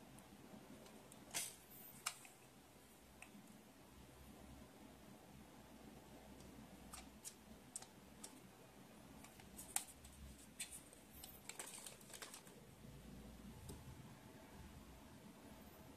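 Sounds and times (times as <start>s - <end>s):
plastic packaging crinkling: 9.3s - 12.6s.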